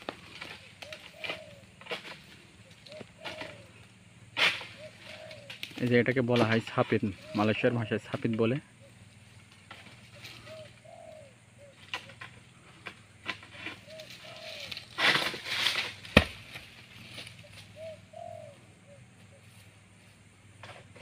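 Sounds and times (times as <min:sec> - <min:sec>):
doves cooing: 0:00.0 - 0:21.0
fruit bunch rustling through fronds: 0:13.8 - 0:17.8
heavy thud on ground: 0:16.0 - 0:16.7.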